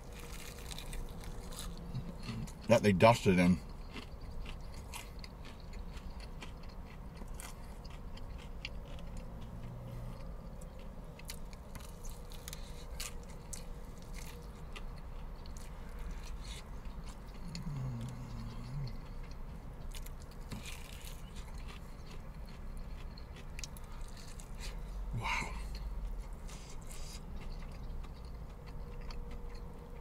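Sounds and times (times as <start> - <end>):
chewing crispy chicken: 0.0 - 30.0
closed-mouth hums: 17.2 - 19.2.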